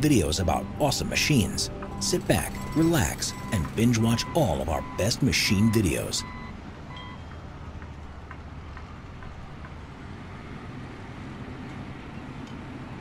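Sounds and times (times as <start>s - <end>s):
heavy machinery rumble: 0.0s - 13.0s.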